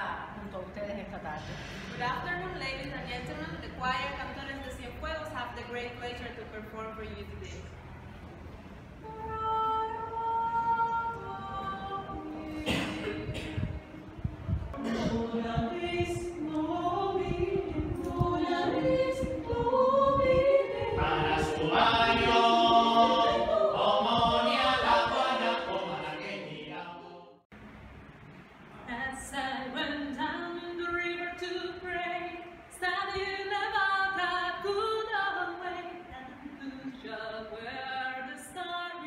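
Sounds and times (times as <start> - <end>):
choir singing in harmony: 9.0 - 14.1, 14.8 - 27.5.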